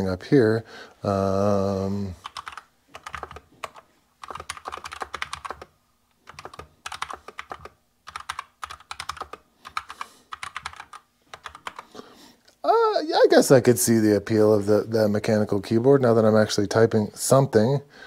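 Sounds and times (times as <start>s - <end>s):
mechanical keyboard typing: 2.2s - 11.9s.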